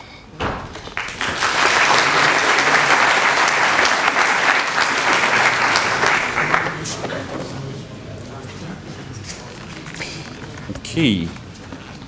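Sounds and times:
audience applauding: 0.5s - 7.1s.

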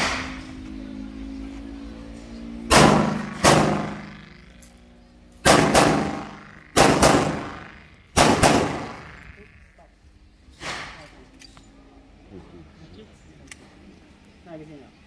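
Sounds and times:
pistol shots: 2.7s - 4.4s, 5.4s - 9.5s.

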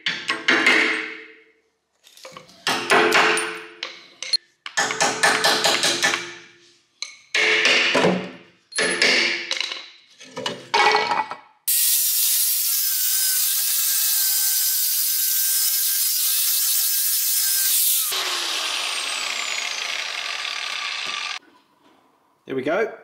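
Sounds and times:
angle grinder cutting metal: 11.7s - 21.4s.

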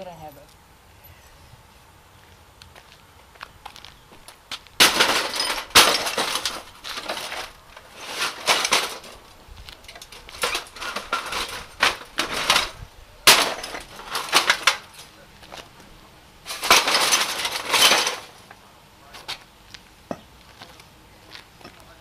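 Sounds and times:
axe shattering glass: 4.8s - 9.2s, 13.3s - 15.1s.

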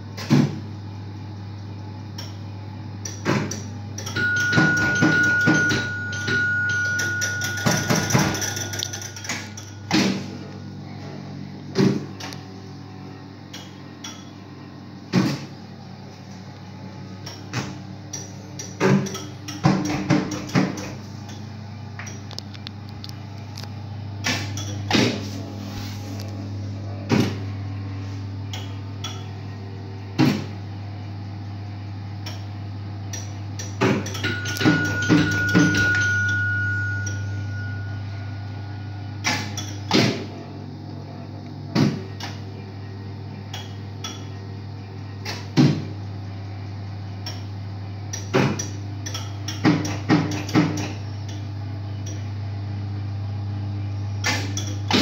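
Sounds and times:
mechanical clacks of reels: 3.0s - 10.3s
slot machine humming: 3.6s - 45.2s.

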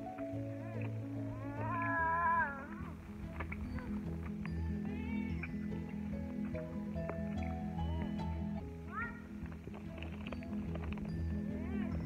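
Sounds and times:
background music with low bass: 0.0s - 12.0s
high wavering cry: 0.5s - 3.0s.

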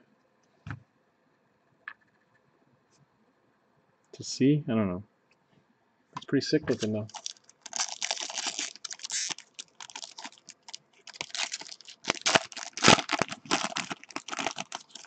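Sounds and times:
foil wrapper tearing and crinkling: 6.7s - 15.0s.

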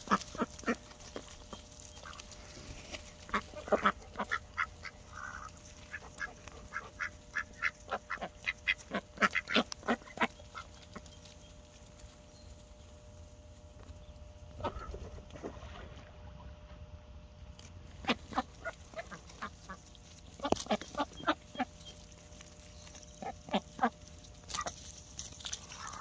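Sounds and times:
ducks quacking: 0.0s - 11.4s, 14.6s - 15.3s, 17.9s - 24.8s.

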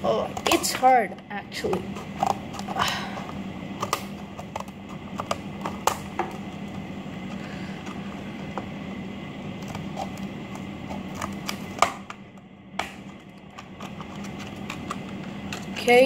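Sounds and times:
scissors snipping plastic: 3.8s - 6.3s, 9.6s - 12.2s.

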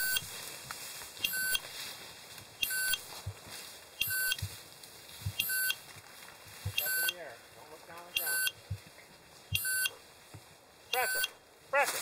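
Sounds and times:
short high electronic beeps: 0.0s - 0.3s, 1.2s - 1.6s, 2.6s - 3.0s, 4.0s - 4.4s, 5.4s - 5.8s, 6.8s - 7.2s, 8.2s - 8.6s, 9.5s - 10.0s, 10.9s - 11.4s
faint low thuds: 3.1s - 3.6s, 4.2s - 5.6s.

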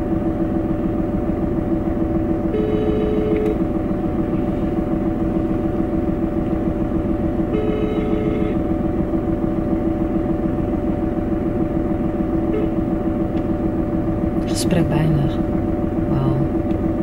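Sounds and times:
steady car interior hum: 0.0s - 17.0s
phone ringback tone beep: 2.6s - 3.5s, 7.5s - 8.6s, 12.5s - 12.8s.

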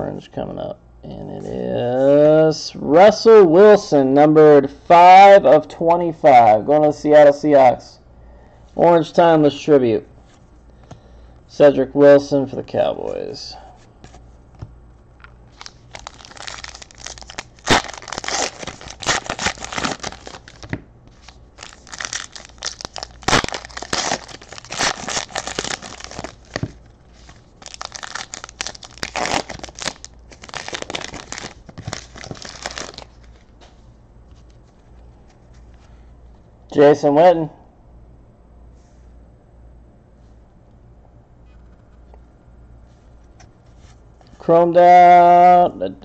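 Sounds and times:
wrapper tearing and crinkling: 15.5s - 33.4s.

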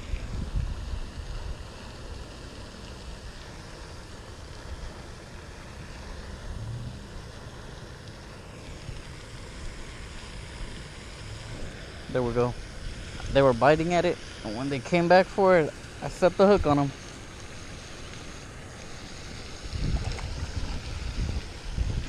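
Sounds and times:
wind buffeting microphone: 0.0s - 1.7s, 19.5s - 22.0s.

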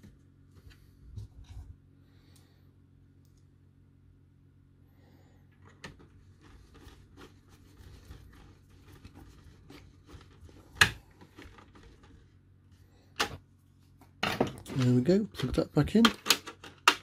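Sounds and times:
small clicks and scrapes: 5.5s - 12.4s.

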